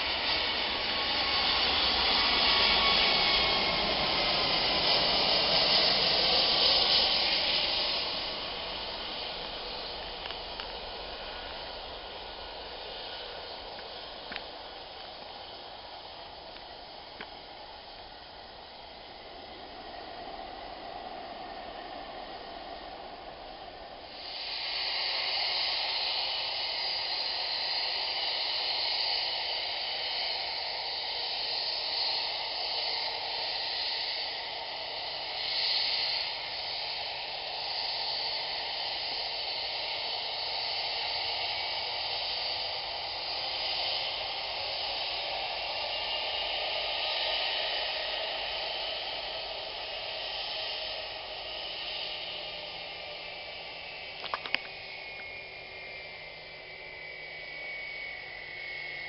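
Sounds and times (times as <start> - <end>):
jet engines hissing: 0.0 - 59.0.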